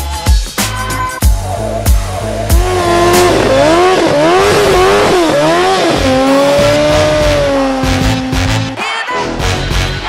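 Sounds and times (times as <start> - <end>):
motorcycles revving: 1.2 - 8.8.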